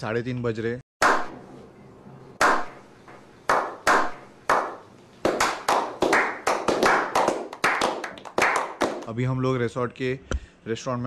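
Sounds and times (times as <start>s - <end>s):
people clapping: 1.0s - 1.3s, 2.4s - 2.8s, 3.5s - 9.2s
single hand claps: 2.4s - 2.8s, 3.5s - 9.1s.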